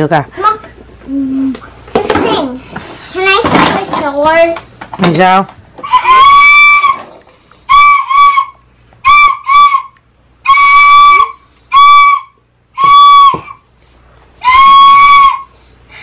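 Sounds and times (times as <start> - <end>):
toy recorder tooting: 5.8 - 7.0, 7.7 - 13.6, 14.4 - 15.5.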